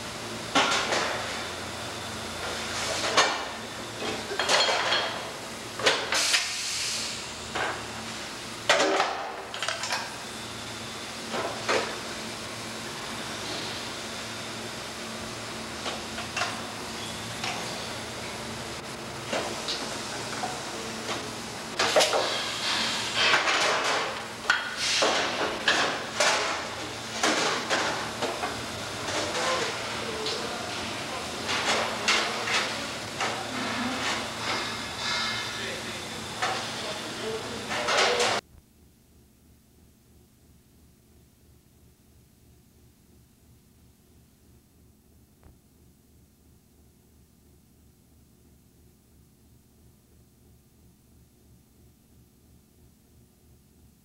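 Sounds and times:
machine-shop hum: 0.0s - 38.6s.

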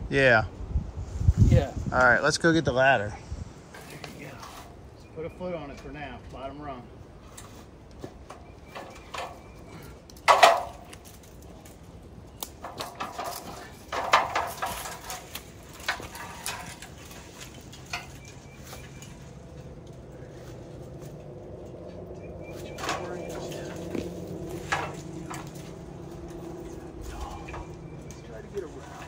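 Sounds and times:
metal ladder clanking and rattling: 7.3s - 11.7s, 12.6s - 29.0s.

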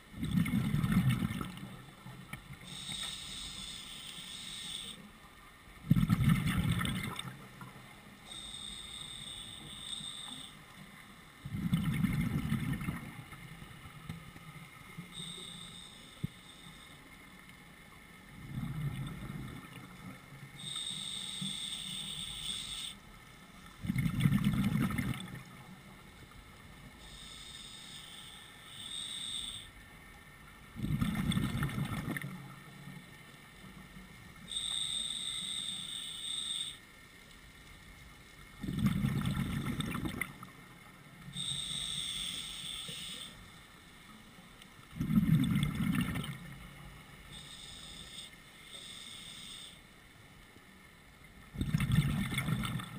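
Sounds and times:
exhaled bubbles bursting: 0.2s - 1.6s, 5.9s - 7.3s, 11.5s - 13.2s, 23.8s - 25.4s, 30.8s - 32.3s, 38.6s - 40.4s, 44.9s - 46.5s, 51.5s - 52.9s
regulator inhale hiss: 2.6s - 5.1s, 8.3s - 10.6s, 15.2s - 17.0s, 20.6s - 23.0s, 27.0s - 29.8s, 34.5s - 36.8s, 41.3s - 43.6s, 47.3s - 50.0s.

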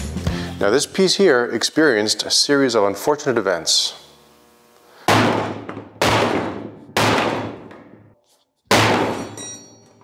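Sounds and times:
hammer on sheet metal: 5.1s - 7.6s.

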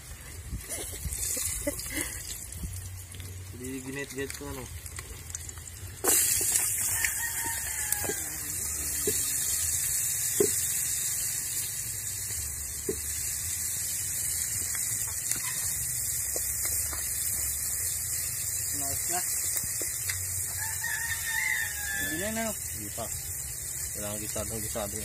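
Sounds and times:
steady high hiss: 5.9s - 25.0s
rooster crowing: 6.7s - 9.8s, 20.4s - 22.6s.

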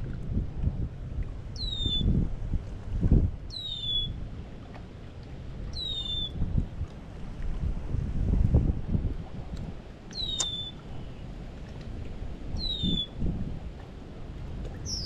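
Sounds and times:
wind rumble on microphone: 0.0s - 15.0s
bird whistle call: 1.6s - 2.1s, 3.5s - 4.2s, 5.8s - 6.4s, 10.2s - 10.8s, 12.6s - 13.1s.

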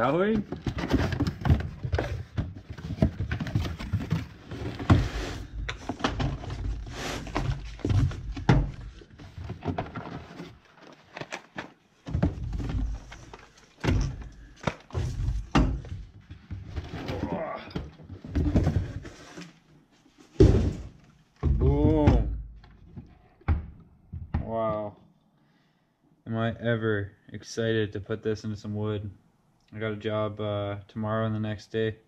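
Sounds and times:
objects thunking and clattering: 0.3s - 19.6s, 20.2s - 24.9s.

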